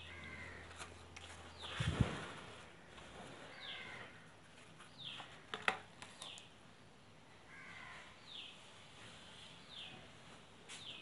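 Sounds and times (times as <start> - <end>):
faint bird calls: 0.0 - 0.9, 2.8 - 4.4, 7.4 - 8.6.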